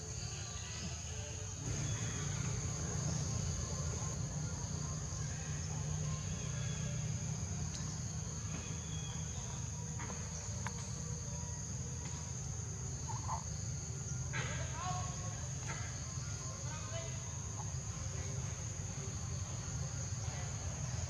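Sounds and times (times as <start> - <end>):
insects droning: 0.0 - 21.0
low steady rumble: 1.5 - 14.4.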